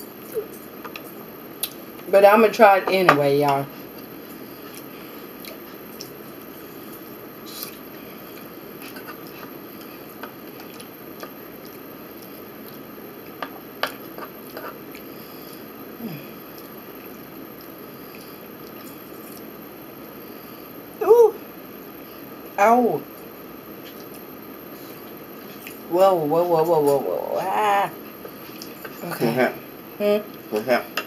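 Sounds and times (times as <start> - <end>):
room hiss: 0.0 - 31.0
soft chewing: 3.8 - 15.6, 16.3 - 19.7, 23.1 - 25.9, 28.0 - 29.0.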